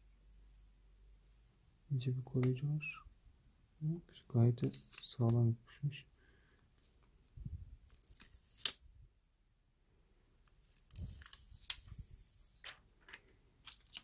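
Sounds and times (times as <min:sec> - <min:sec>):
plastic film peeling and crinkling: 0:12.6 - 0:14.0.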